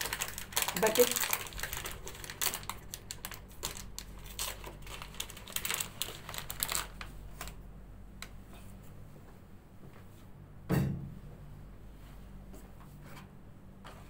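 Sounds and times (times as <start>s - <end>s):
plastic wrapping crinkling: 0.0s - 7.6s.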